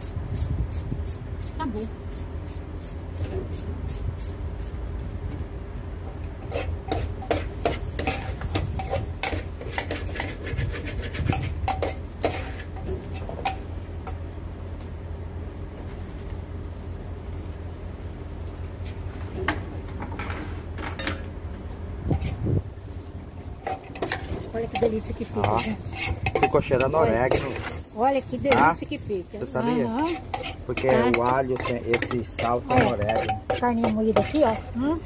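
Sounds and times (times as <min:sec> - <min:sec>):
steady low hum: 0:00.0 - 0:35.0
metal spoon scraping a pan: 0:06.4 - 0:13.7, 0:22.1 - 0:22.5, 0:23.6 - 0:35.0.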